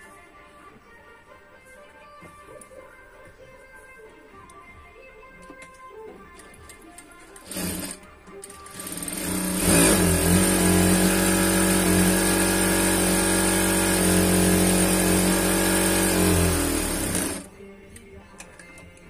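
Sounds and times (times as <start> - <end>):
sewing machine running fast: 7.4 - 8.0, 8.6 - 17.5.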